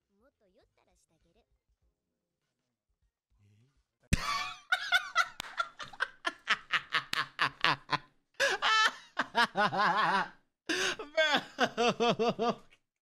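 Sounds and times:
man laughing: 4.1s - 12.7s.

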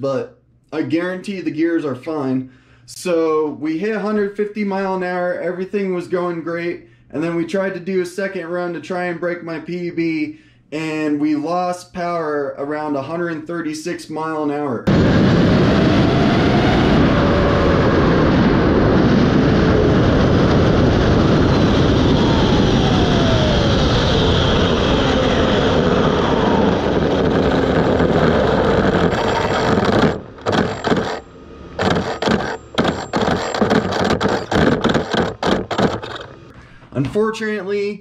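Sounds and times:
wind and tyre noise: 14.9s - 36.5s
motor whine: 20.9s - 36.5s.

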